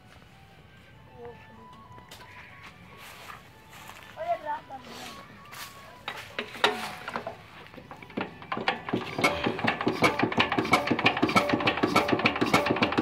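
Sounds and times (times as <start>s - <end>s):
hand crank clanks: 6.1s - 13.0s
diesel engine knocking: 7.9s - 13.0s.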